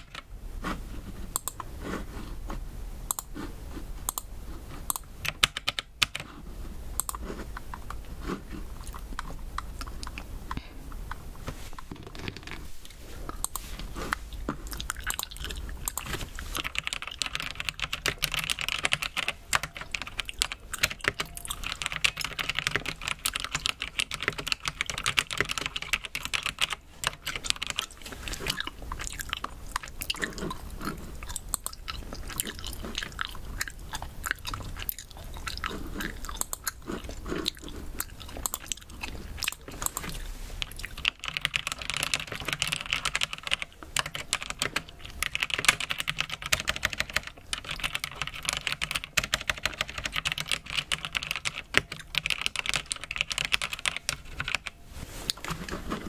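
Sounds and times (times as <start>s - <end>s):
mechanical keyboard keystrokes: 4.9s - 6.3s, 15.9s - 27.8s, 41.0s - 54.7s
chewing gummies: 7.0s - 54.6s.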